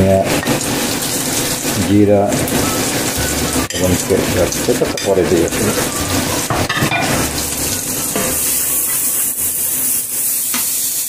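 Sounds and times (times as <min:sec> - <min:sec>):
spices sizzling in oil: 0:00.0 - 0:11.0
spoon knocking pan: 0:02.3 - 0:09.3.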